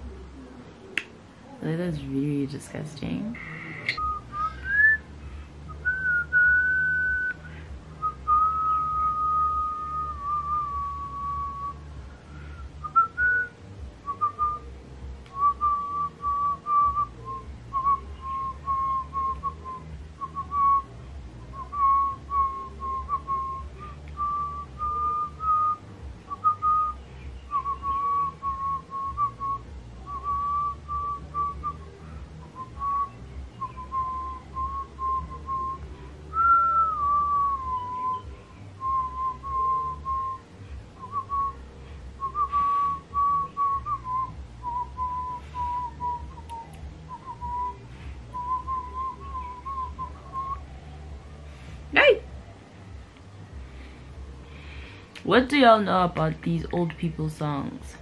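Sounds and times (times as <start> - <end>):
woman whistling a tune: 3.7 - 5.0, 5.7 - 14.7, 15.3 - 20.9, 21.5 - 41.6, 42.2 - 50.6.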